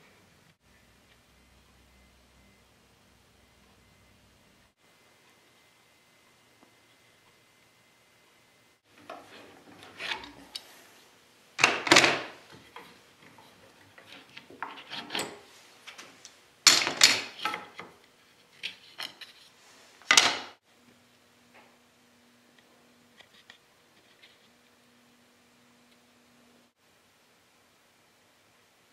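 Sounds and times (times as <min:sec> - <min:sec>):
wooden pieces scraping and rubbing: 0:09.0 - 0:11.0, 0:11.6 - 0:16.1, 0:16.8 - 0:20.5.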